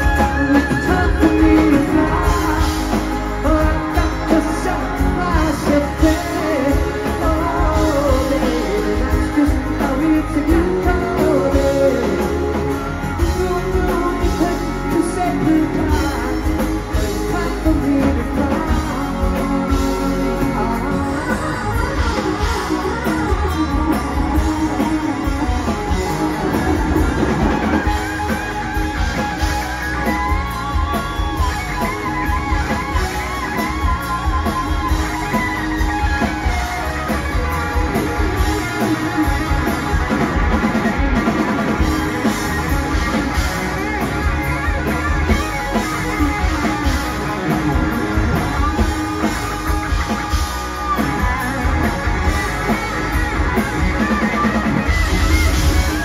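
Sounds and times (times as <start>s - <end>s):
bass guitar: 0.0s - 56.0s
drum kit: 0.0s - 56.0s
electric guitar lead: 0.0s - 56.0s.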